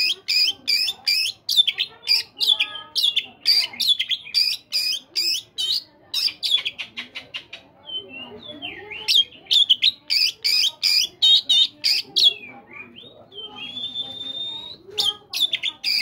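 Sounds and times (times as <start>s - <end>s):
bird singing whistled notes: 7.9s - 16.0s.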